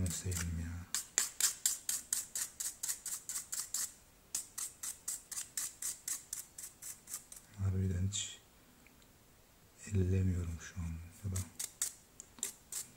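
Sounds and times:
brush scrubbing plastic: 0.0s - 7.5s.

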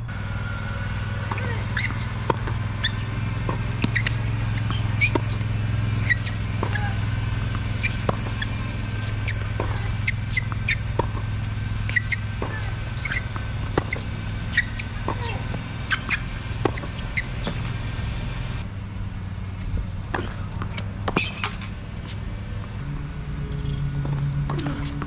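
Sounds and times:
steady low hum: 0.0s - 25.0s
racket striking tennis ball: 0.8s - 18.6s, 20.0s - 22.3s, 24.1s - 25.0s
sneakers squeaking on court: 0.8s - 18.6s, 20.0s - 22.3s, 23.6s - 25.0s
tennis ball bouncing: 0.8s - 18.6s, 20.0s - 22.8s, 24.0s - 25.0s.

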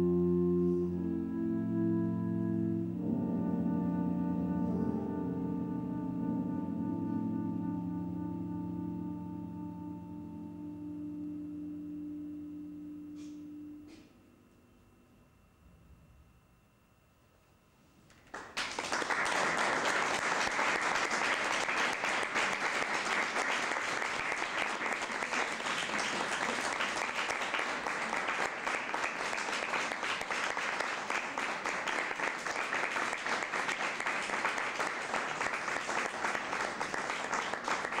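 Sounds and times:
audience applauding: 18.1s - 38.0s.

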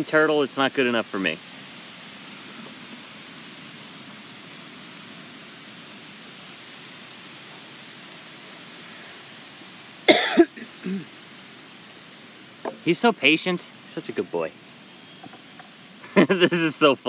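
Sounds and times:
steady background hiss: 0.0s - 17.0s
person coughing: 10.1s - 11.1s.

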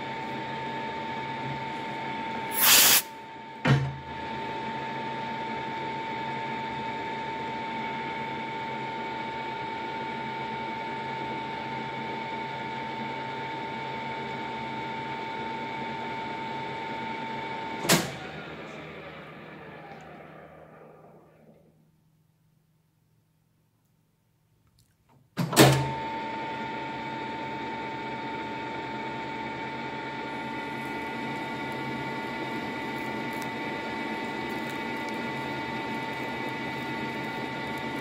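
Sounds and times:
lathe gear whine: 25.9s - 38.0s.

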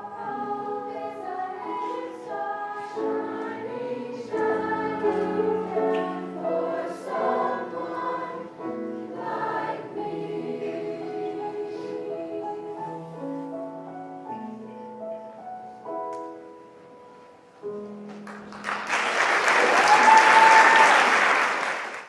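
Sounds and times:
choir singing with piano: 0.0s - 16.8s
audience applause: 18.2s - 22.0s
audience cheering: 19.0s - 22.0s.

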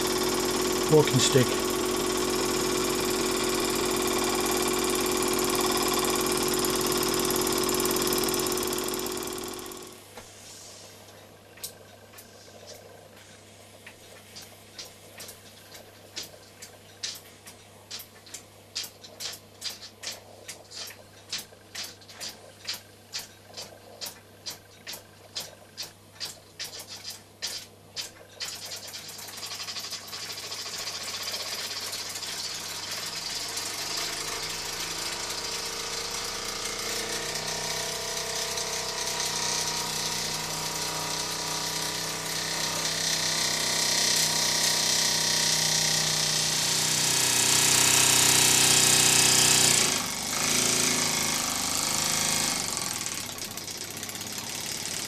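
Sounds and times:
small steam engine chattering: 0.0s - 9.9s, 18.8s - 45.7s.

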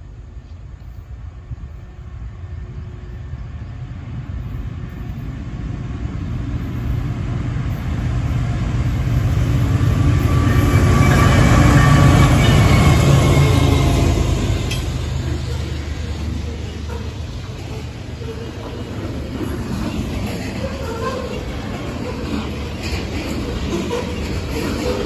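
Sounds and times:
diesel locomotive engine rumble: 0.0s - 25.0s
train wheel and rail noise: 0.0s - 25.0s.

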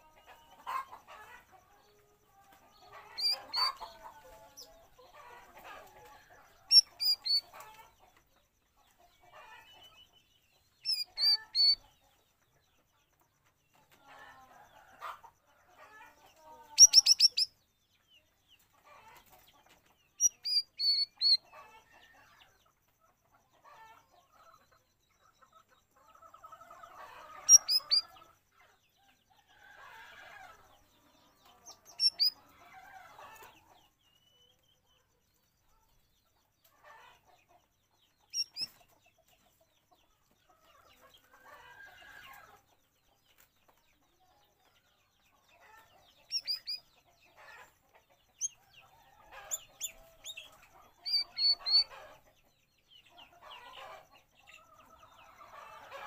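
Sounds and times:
bird harsh chattering: 16.8s - 17.5s.

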